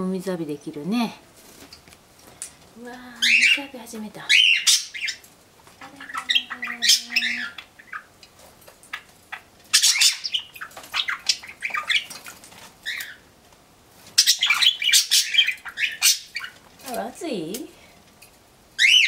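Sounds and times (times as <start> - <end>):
budgerigars chirping and squawking: 3.2 - 13.3, 14.0 - 17.0, 18.8 - 19.0.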